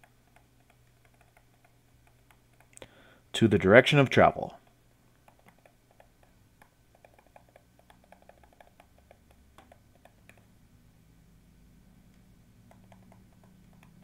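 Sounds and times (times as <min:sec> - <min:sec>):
stylus tapping on pen tablet: 0:00.0 - 0:02.8, 0:04.6 - 0:10.5, 0:12.6 - 0:14.0
low steady hum: 0:00.0 - 0:14.0.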